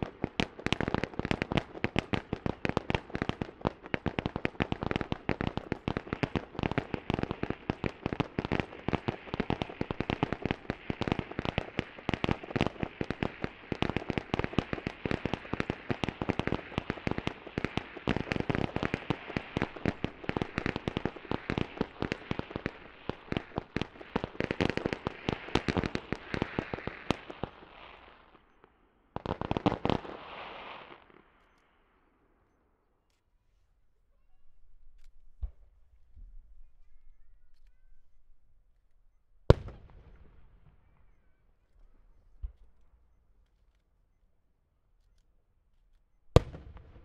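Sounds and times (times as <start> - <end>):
fireworks bangs and crackles: 0.0 - 31.4, 39.4 - 43.0, 46.3 - 47.0.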